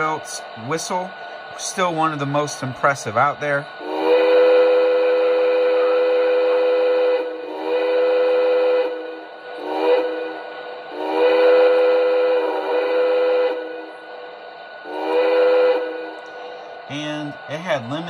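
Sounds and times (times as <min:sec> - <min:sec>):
electronic train whistle chord: 0:03.5 - 0:18.0.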